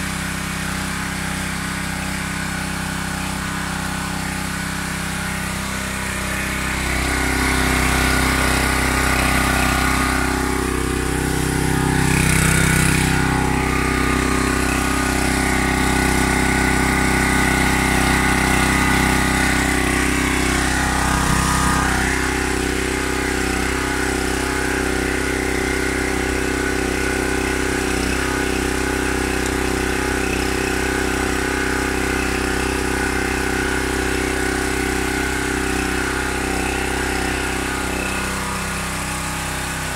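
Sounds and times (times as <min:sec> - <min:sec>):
pressure washer engine running: 0:00.0 - 0:39.9.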